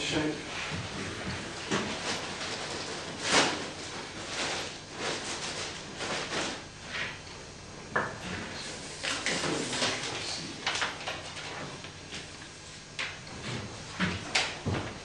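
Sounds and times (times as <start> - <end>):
rustling and scraping: 0.6 - 7.2.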